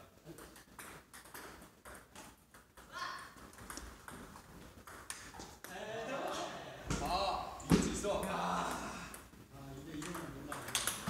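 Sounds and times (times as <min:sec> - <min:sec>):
table tennis ball clicking: 0:10.0 - 0:11.0.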